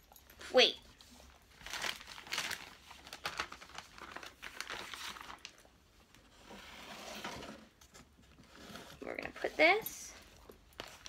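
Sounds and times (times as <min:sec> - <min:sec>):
plastic bag crinkling: 0:01.4 - 0:05.8.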